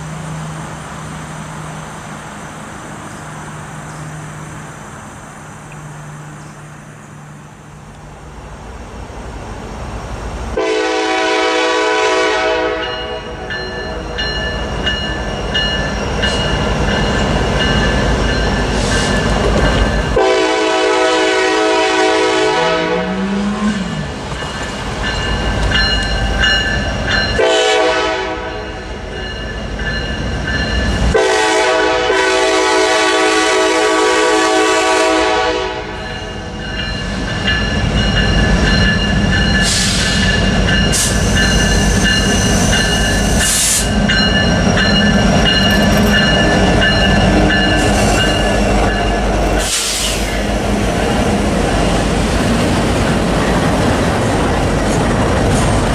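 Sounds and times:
diesel locomotive engines passing: 0.0 - 55.9
locomotive air horn blasts: 10.6 - 13.5, 20.2 - 24.0, 27.4 - 28.8, 31.1 - 36.0
crossing bell ringing: 12.6 - 20.7, 23.5 - 31.2, 35.7 - 49.6
wheels clattering on rails: 13.0 - 20.2, 23.2 - 27.5, 36.1 - 55.9.

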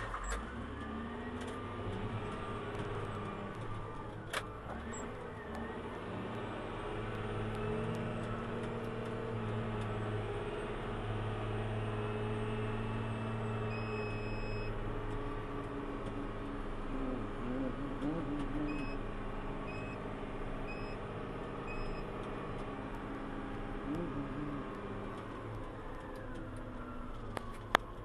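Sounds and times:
diesel engine running under load: 0.0 - 28.0.

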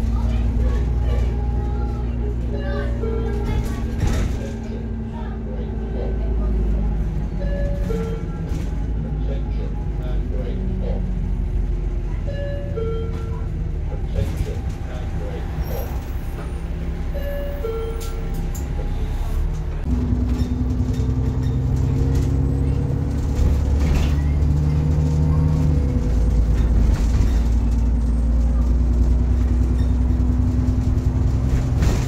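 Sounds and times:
bus diesel engine under load: 0.0 - 32.0.

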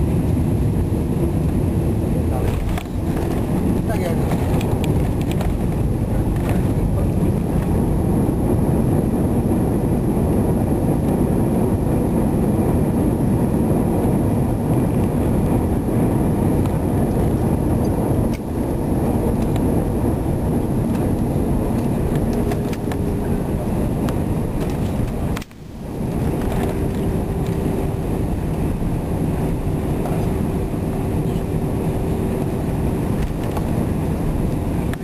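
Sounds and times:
aircraft cabin engine rumble: 0.0 - 35.0
wheels on runway: 0.1 - 35.0.

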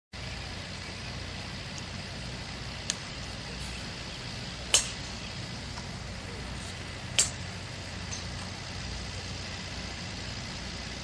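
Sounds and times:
golf club striking ball: 4.4 - 6.0, 6.9 - 8.7.

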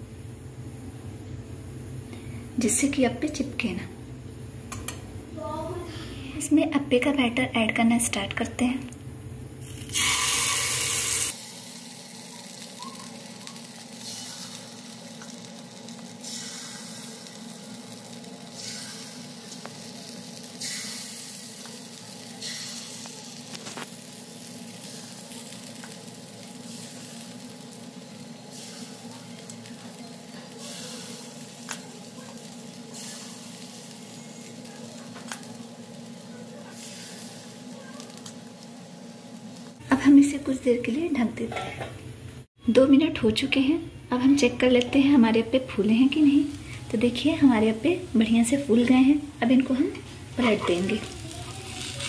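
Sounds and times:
batter sizzling in hot oil: 9.5 - 41.4, 43.3 - 52.0.

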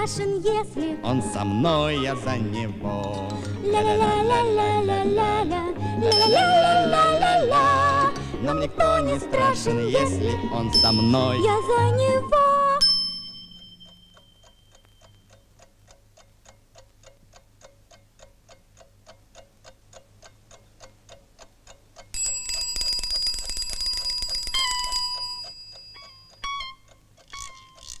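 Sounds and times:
alarm clock ticking: 6.1 - 8.3, 10.7 - 11.9, 12.8 - 28.0
alarm clock bell ringing: 10.8 - 11.4, 12.8 - 14.8, 22.2 - 26.8.

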